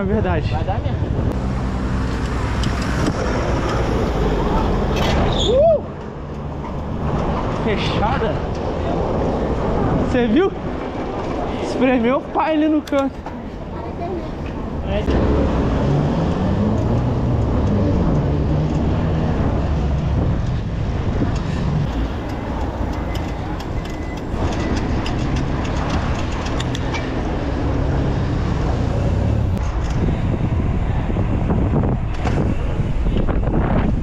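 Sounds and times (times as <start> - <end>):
road and wind noise: 0.0 - 34.0
motor vehicle engine running: 1.1 - 5.0, 15.0 - 30.0.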